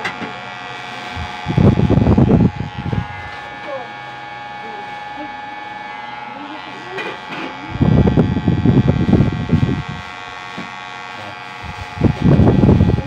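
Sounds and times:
electric hair clipper buzzing: 0:00.0 - 0:13.0
clipper rasping through hair: 0:05.7 - 0:13.0.

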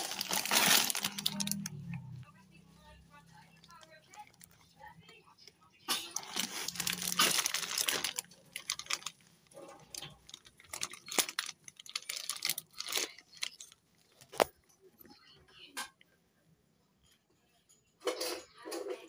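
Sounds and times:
plastic bag crinkling: 0:00.0 - 0:01.9, 0:03.5 - 0:04.6, 0:05.9 - 0:14.5.

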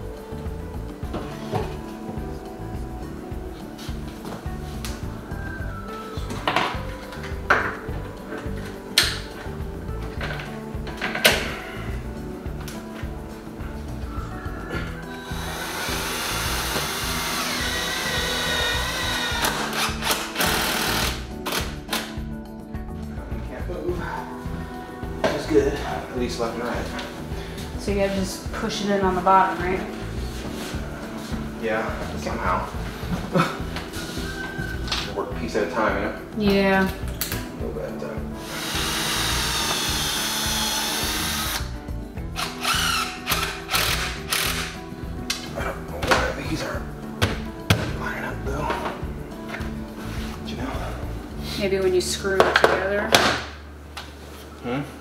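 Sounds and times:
background music: 0:00.0 - 0:55.0
power drill driving screws: 0:15.3 - 0:21.7, 0:38.4 - 0:41.7, 0:42.4 - 0:44.8
impact driver driving screw: 0:38.5 - 0:41.7.

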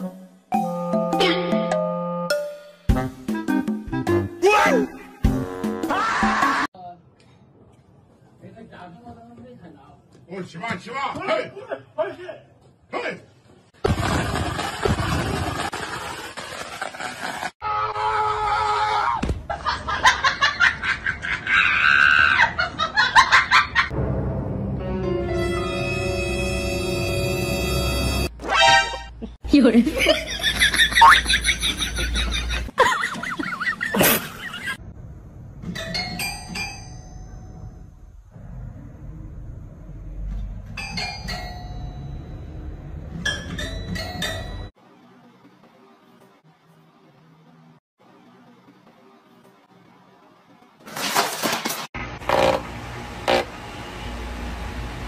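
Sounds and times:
music: 0:00.0 - 0:06.7, 0:23.9 - 0:29.1, 0:44.7 - 0:50.8
person laughing: 0:29.2 - 0:34.8.

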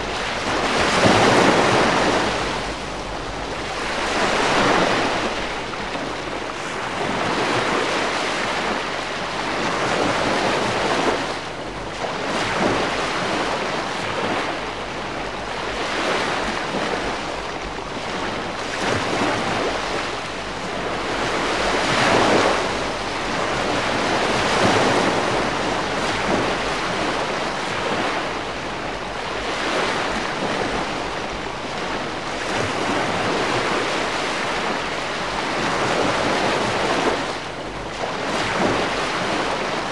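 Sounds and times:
gentle waves on shore: 0:00.0 - 0:39.9.

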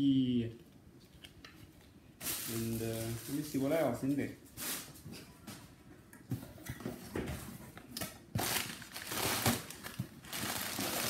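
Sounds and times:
packing material rustling: 0:02.2 - 0:04.0, 0:08.4 - 0:11.0.

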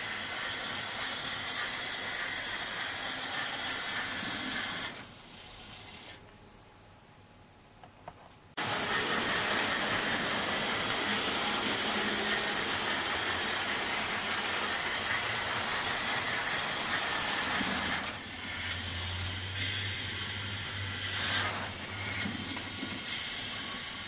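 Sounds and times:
model train wheels rattling on rails: 0:11.0 - 0:18.8.

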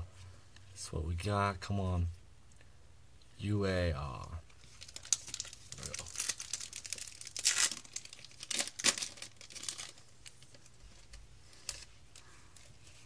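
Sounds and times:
faint handling of cards: 0:04.2 - 0:13.0
foil wrapper tearing and crinkling: 0:04.6 - 0:11.9.

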